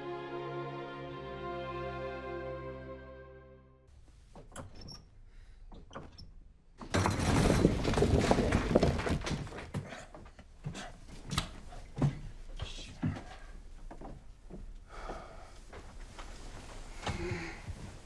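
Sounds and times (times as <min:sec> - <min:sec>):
clattering crash of falling objects: 0:06.8 - 0:09.8.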